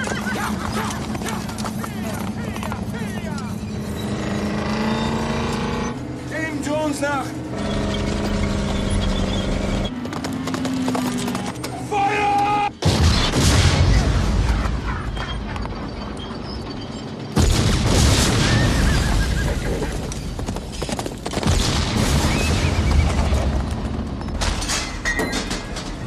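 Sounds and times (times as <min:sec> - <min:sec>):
tank shell explosions: 0:12.8 - 0:15.5, 0:17.2 - 0:20.5, 0:21.2 - 0:26.0
horse whinnying: 0:18.5 - 0:20.1.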